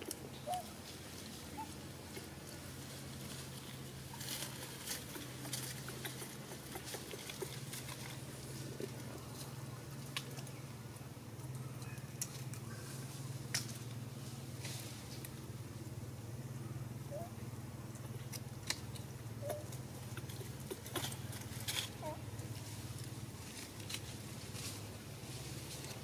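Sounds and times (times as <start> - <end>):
dry leaves crackling and rustling: 0.0 - 10.9, 18.2 - 26.0.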